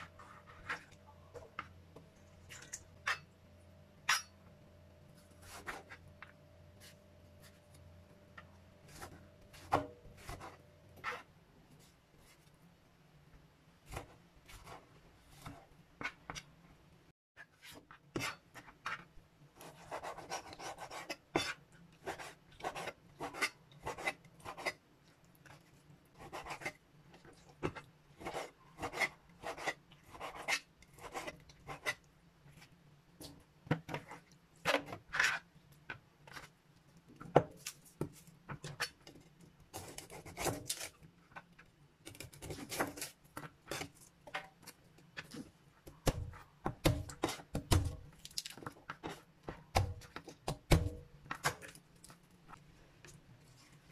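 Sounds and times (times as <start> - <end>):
knife scraping on board: 2.5 - 3.3, 17.6 - 24.8, 33.9 - 35.5.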